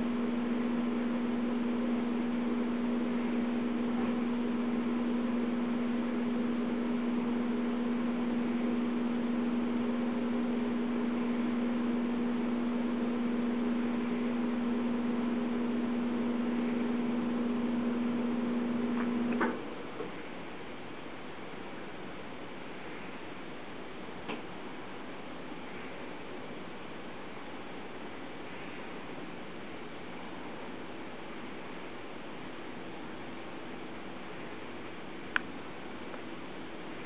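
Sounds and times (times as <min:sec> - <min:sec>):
steady low hum: 0:00.0 - 0:37.0
faint hiss: 0:19.6 - 0:37.0
click: 0:35.3 - 0:35.5.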